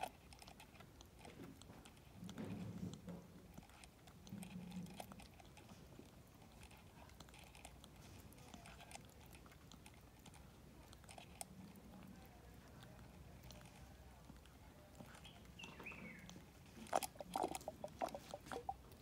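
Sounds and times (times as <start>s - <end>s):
monkey sucking from bottle: 15.2s - 19.0s.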